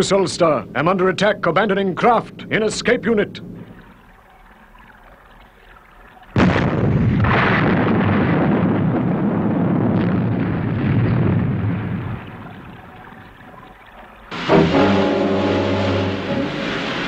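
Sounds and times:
explosion with long rumble: 6.4 - 12.3.

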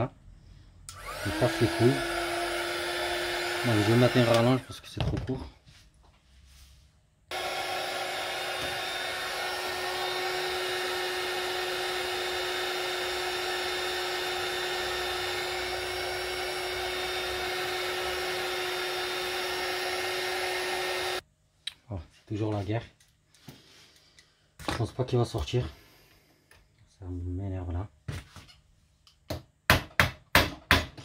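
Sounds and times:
hair dryer running: 0.9 - 4.7, 7.3 - 21.2.

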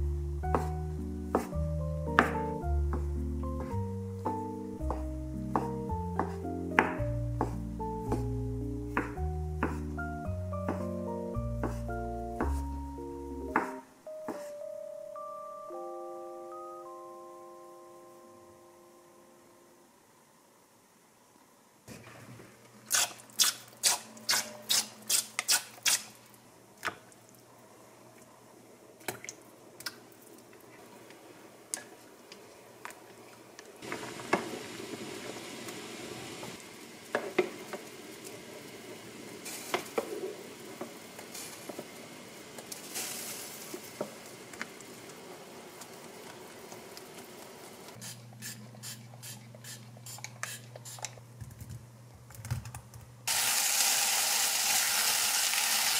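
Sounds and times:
wooden spoon knocking pot: 4.8 - 7.5
water boiling in pot: 22.9 - 48.1, 53.3 - 55.9.

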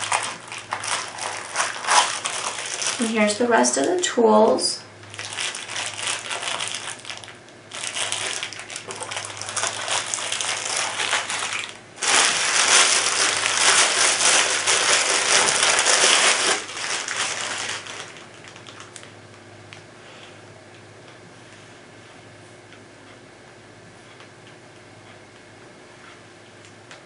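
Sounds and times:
plastic packaging crinkling: 0.0 - 4.0, 5.0 - 19.2.

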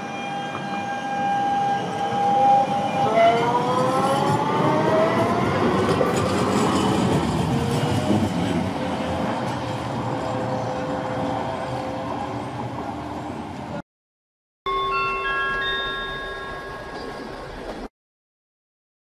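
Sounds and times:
tram wheels rumbling on rails: 0.5 - 13.8, 16.6 - 17.9.

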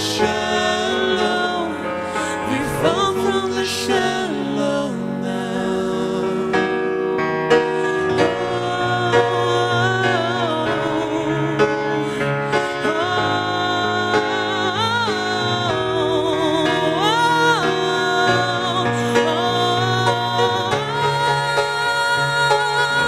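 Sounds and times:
grand piano chords: 0.0 - 23.0
woman singing long wavering notes: 12.8 - 23.0.

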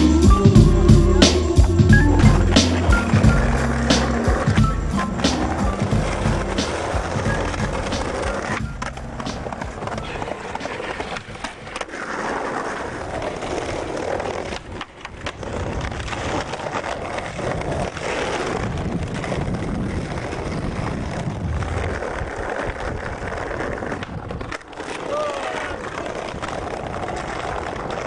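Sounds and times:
skateboard wheels rolling on concrete: 0.0 - 28.0
skateboard clacks: 1.0 - 28.0.

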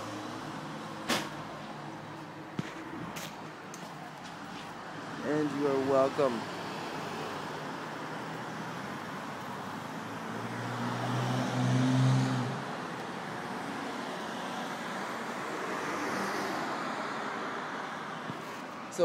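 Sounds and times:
road traffic noise: 0.0 - 19.0
vehicle passing close by: 6.6 - 18.0.

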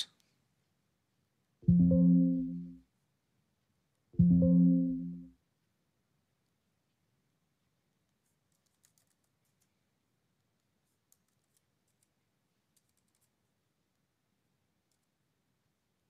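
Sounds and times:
faint keyboard typing: 8.0 - 14.1, 14.8 - 15.3.

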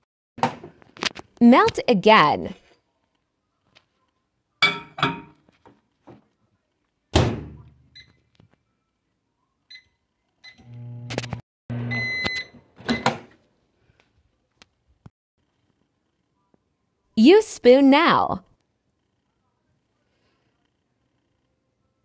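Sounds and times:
glass plate clattering: 4.6 - 5.4
microwave beeps: 8.0 - 8.2, 9.7 - 11.1, 11.7 - 13.2
microwave humming: 10.5 - 13.2.

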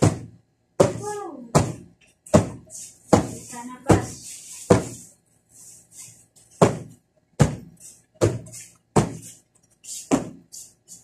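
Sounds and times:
sofa cushions being beaten: 0.0 - 5.0, 6.5 - 9.3, 10.0 - 10.5.

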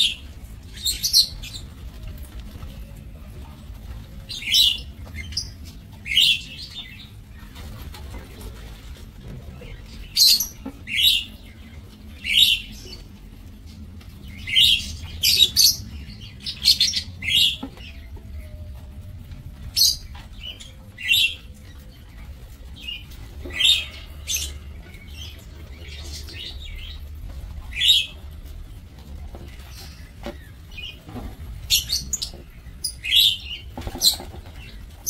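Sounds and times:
birds chirping shrilly: 22.8 - 27.0, 29.5 - 35.0.

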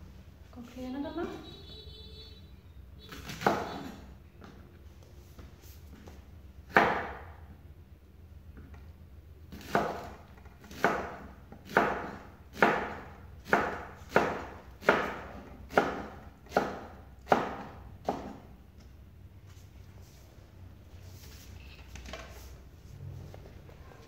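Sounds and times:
knife chopping on wooden board: 6.7 - 7.3, 9.5 - 18.5.

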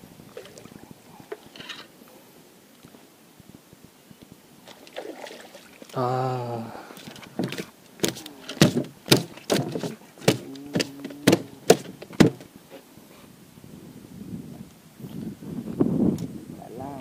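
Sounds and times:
person grunting: 6.0 - 7.0, 10.4 - 11.7
sharp knocks and clunks: 7.3 - 12.5.

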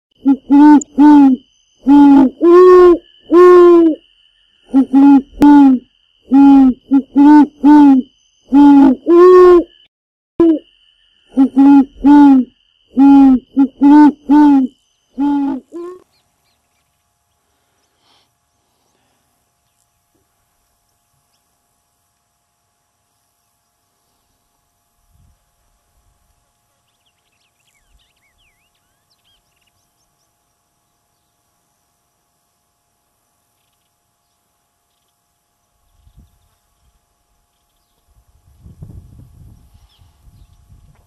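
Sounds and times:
owl hoots: 0.2 - 4.0, 4.6 - 9.8, 10.4 - 10.7, 11.3 - 16.0.

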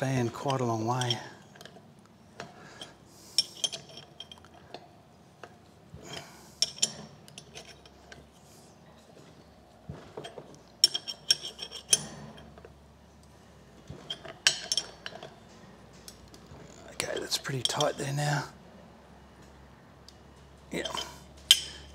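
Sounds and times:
spanner clinking on metal: 0.0 - 8.4, 10.1 - 12.8, 13.9 - 18.4, 20.7 - 21.9.

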